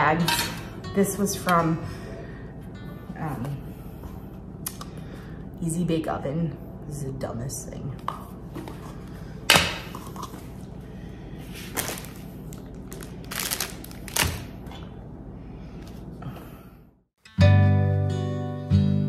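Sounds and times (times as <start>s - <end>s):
acoustic guitar music: 0.0s - 2.0s, 17.2s - 19.0s
room hum: 0.0s - 17.1s.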